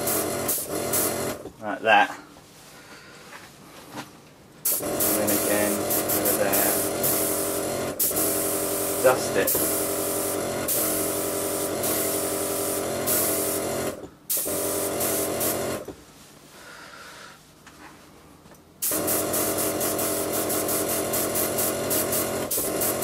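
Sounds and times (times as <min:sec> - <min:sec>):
air compressor humming: 0:00.0 - 0:01.6, 0:04.6 - 0:16.0, 0:18.8 - 0:23.0
airbrush spraying hiss: 0:04.6 - 0:15.8, 0:18.8 - 0:23.0.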